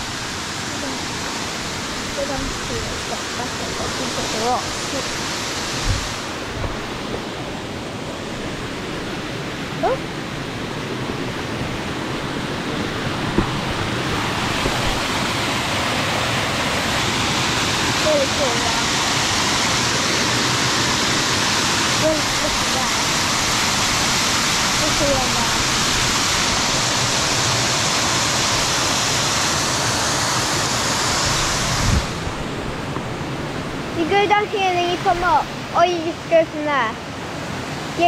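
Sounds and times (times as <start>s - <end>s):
waterfall rushing: 0.0s - 38.0s
low thump: 13.2s - 13.7s.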